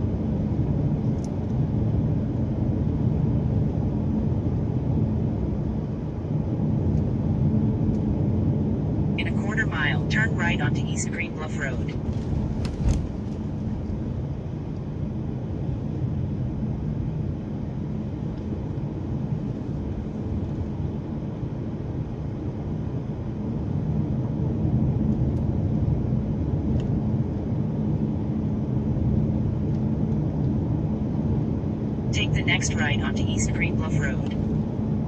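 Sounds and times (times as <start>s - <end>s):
car engine rumble: 0.0s - 35.0s.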